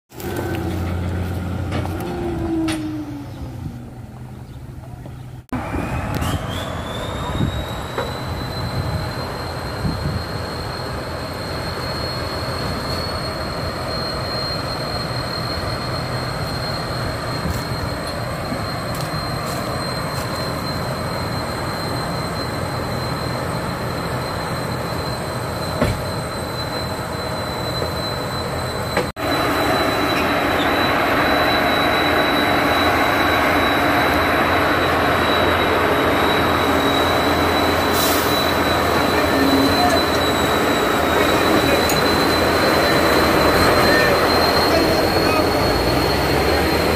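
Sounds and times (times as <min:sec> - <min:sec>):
diesel engine running hard: 0:00.1 - 0:04.8, 0:29.2 - 0:46.9
turbo whistle: 0:05.7 - 0:46.9.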